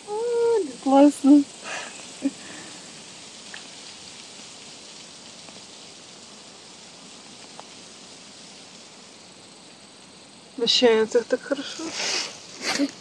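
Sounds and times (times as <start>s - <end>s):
steady outdoor hiss: 0.0s - 13.0s
faint ticks: 1.2s - 10.5s.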